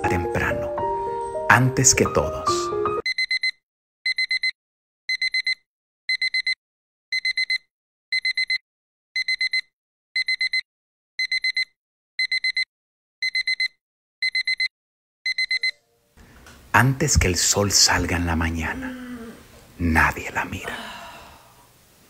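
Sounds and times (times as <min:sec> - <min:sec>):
alarm clock beeping: 0:03.1 - 0:08.6, 0:09.2 - 0:10.6, 0:11.2 - 0:14.7, 0:15.3 - 0:15.8.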